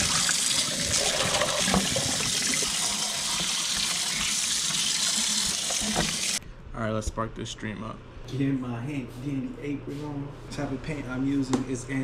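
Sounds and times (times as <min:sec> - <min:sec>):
tap water running into sink: 0:00.0 - 0:06.4.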